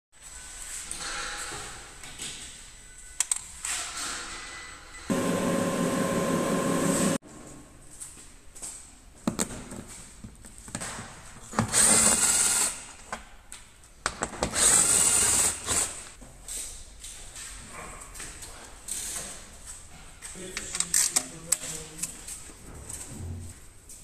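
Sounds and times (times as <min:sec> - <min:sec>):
car lift motor running: 0:05.1 - 0:07.2.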